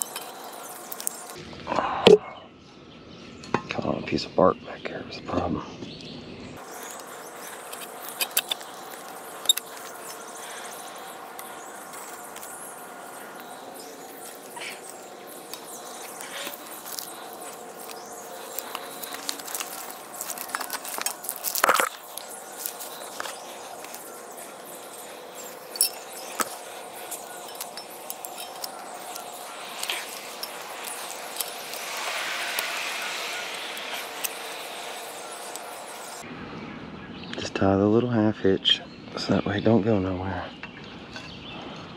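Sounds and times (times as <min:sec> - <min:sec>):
faint steady hum: 0:05.9 - 0:39.4
climbing gear clattering: 0:11.4 - 0:31.9.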